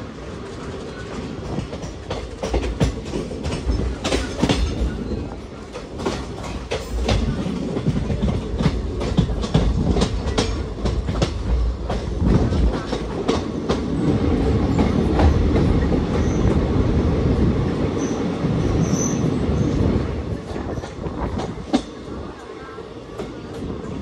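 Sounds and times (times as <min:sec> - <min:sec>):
train rumble: 0:00.0 - 0:24.0
wheels clacking over rail joints: 0:00.5 - 0:16.6.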